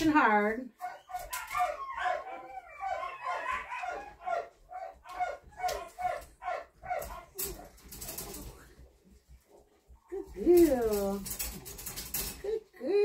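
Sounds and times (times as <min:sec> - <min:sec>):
puppy yapping: 0:00.8 - 0:07.7.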